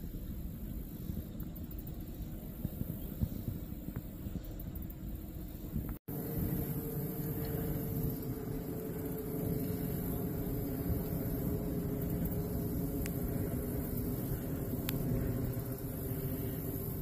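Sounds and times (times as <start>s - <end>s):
distant traffic rumble: 6.1s - 17.0s
faint tone: 6.1s - 17.0s
faint tick: 14.8s - 15.6s.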